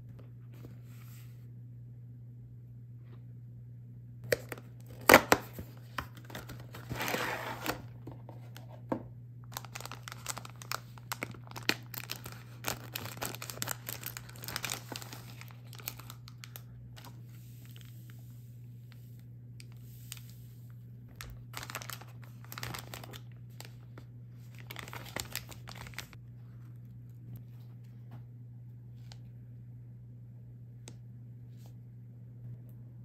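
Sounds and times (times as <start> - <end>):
sachets and plastic tray rustling: 4.3 - 8.8, 9.5 - 17.9, 21.2 - 26.2
paper and plastic rustling: 4.4 - 18.0, 21.2 - 28.2
scissors cutting plastic bag: 9.6 - 16.4.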